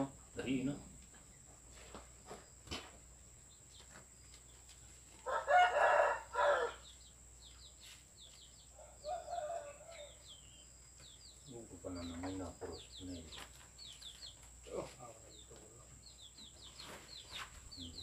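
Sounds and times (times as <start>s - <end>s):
small bird chirps: 0.4s - 5.5s, 6.4s - 18.0s
rooster crowing: 5.2s - 7.0s, 8.7s - 10.4s.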